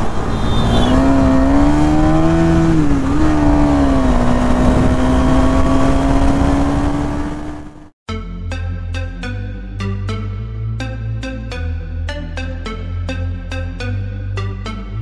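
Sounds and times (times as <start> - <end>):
motorcycle engine cruising: 0.0 - 8.0
road and wind noise: 0.0 - 8.0.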